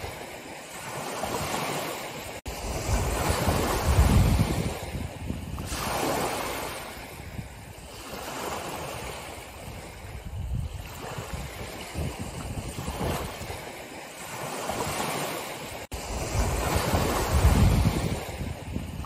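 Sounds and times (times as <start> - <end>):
waves washing up stony shore: 0.0 - 19.0.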